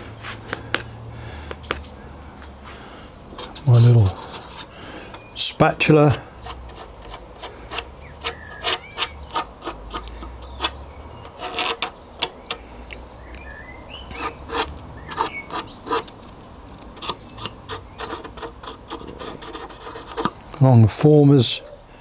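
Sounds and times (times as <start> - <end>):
spatula scraping and tapping wood: 0.2 - 1.9, 3.3 - 5.3, 6.4 - 13.5, 14.1 - 20.6.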